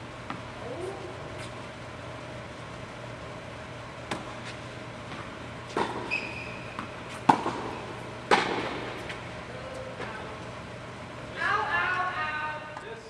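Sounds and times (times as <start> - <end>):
tennis ball struck by rackets: 4.0 - 4.4, 6.7 - 9.1
shoe squeak: 6.0 - 6.9.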